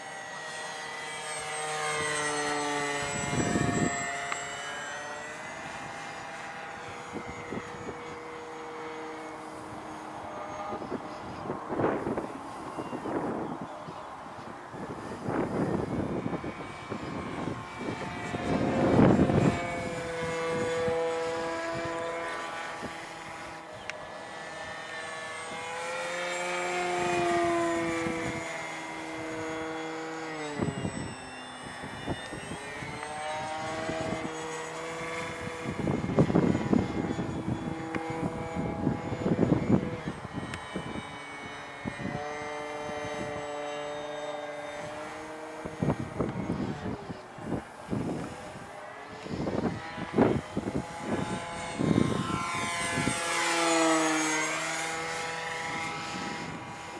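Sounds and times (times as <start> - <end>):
model airplane motor droning: 0.0 - 56.9
wind on microphone: 1.7 - 4.2, 5.2 - 56.9.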